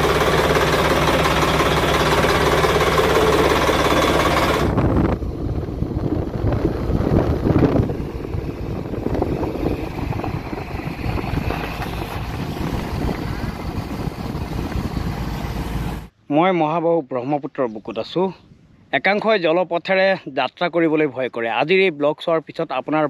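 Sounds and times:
boat engine running: 0.0s - 16.1s
uneven outdoor rumble: 0.0s - 16.2s.

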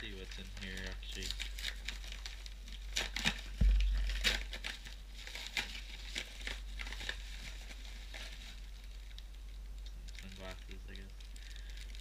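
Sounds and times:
paper envelope crinkling: 0.1s - 9.3s.

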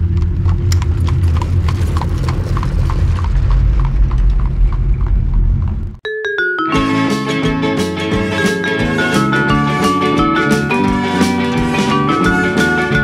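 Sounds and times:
low rumble: 0.0s - 6.0s
plucked-string music: 6.4s - 13.0s.

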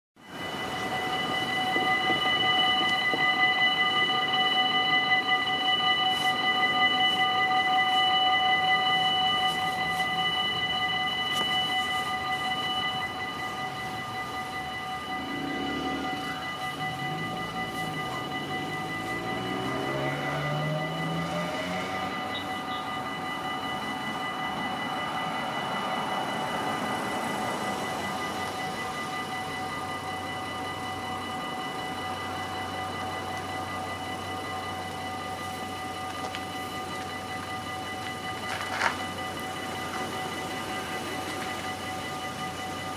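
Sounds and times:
level crossing bells ringing: 0.2s - 42.9s
train passing rumble: 0.2s - 42.9s
cars driving past: 13.2s - 29.1s.

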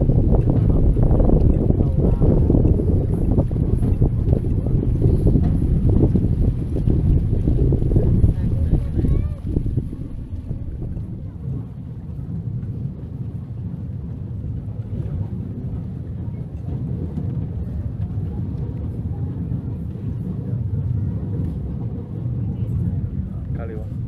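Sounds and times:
tram rumbling: 0.0s - 24.0s
wind on microphone: 0.0s - 24.0s.

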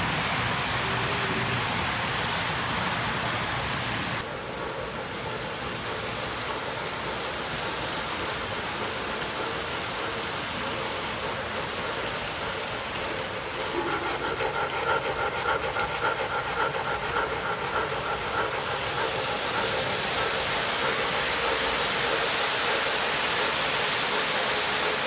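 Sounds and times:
model train wheels on track: 0.0s - 25.0s
pulsing pitched sound: 13.8s - 20.4s.

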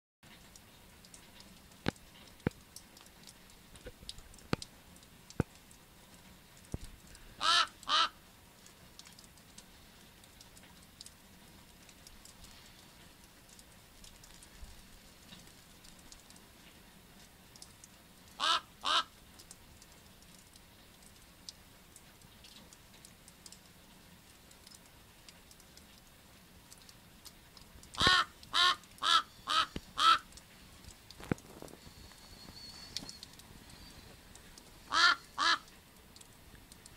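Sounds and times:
faint clicks: 0.3s - 7.2s, 19.3s - 26.1s, 26.7s - 35.0s, 35.6s - 36.9s
raven croaking: 7.4s - 8.2s, 18.4s - 19.1s, 28.0s - 30.4s, 34.9s - 35.7s.

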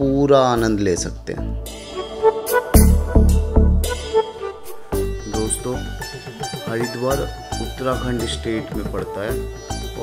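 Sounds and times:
electronic music with deep bass: 2.6s - 6.1s.

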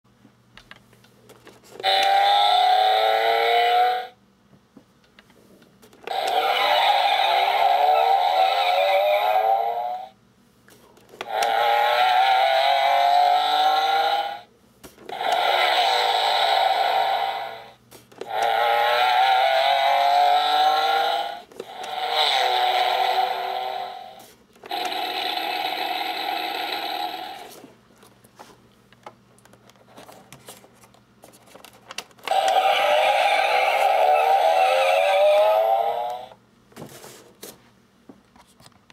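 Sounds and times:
toy car engine rev effect: 1.8s - 4.2s, 6.0s - 10.1s, 11.2s - 14.5s, 15.1s - 27.6s, 32.3s - 36.4s
electronic engine revving: 6.1s - 9.7s, 32.3s - 36.3s
electronic race car engine sound: 32.3s - 36.1s.

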